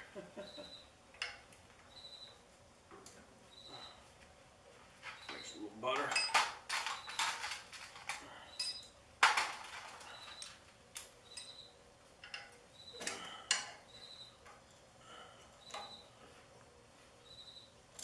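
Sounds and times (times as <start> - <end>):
metal parts clinking: 5.1 - 11.6, 12.2 - 13.8.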